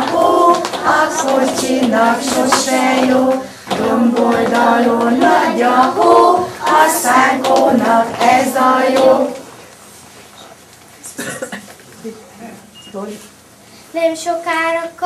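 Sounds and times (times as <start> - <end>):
children singing: 0.0 - 9.4
woman singing: 0.0 - 9.4.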